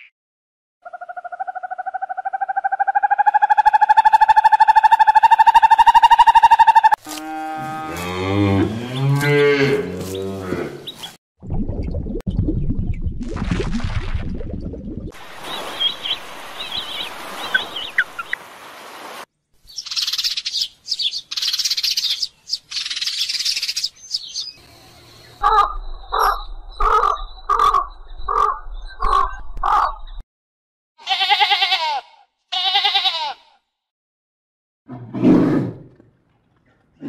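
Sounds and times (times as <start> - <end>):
running water: 15.1 - 19.3
bird song: 15.4 - 18.4, 19.6 - 30.2
harsh caw-like calls: 25.4 - 29.9
sheep bleating: 31.0 - 33.6.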